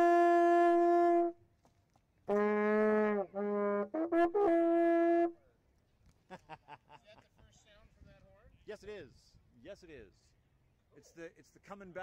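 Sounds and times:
wooden horn notes: 0:00.0 - 0:01.4, 0:02.2 - 0:05.4.

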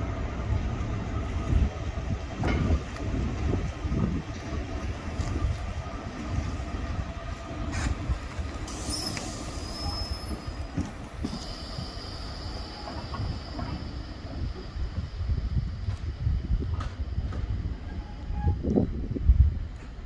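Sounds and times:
diesel locomotive engine rumble: 0:00.0 - 0:20.0
wheel squeal on rails: 0:08.7 - 0:14.0, 0:17.8 - 0:18.8.

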